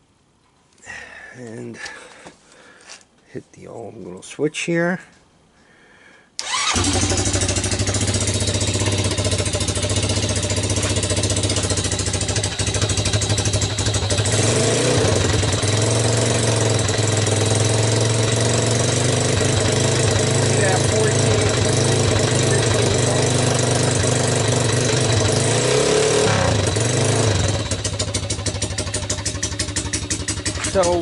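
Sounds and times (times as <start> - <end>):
atv engine starting and idling: 6.4 - 31.0.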